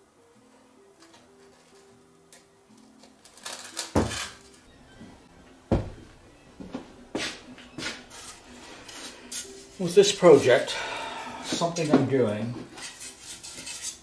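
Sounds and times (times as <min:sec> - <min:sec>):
faint background music: 0:00.0 - 0:14.0
objects knocking on a workbench: 0:05.7 - 0:06.1.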